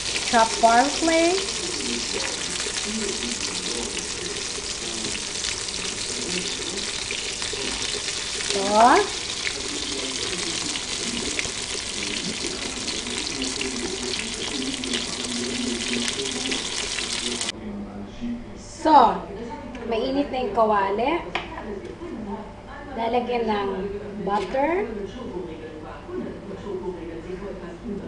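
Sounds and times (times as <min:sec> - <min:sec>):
food sizzling in hot oil: 0:00.0 - 0:17.5.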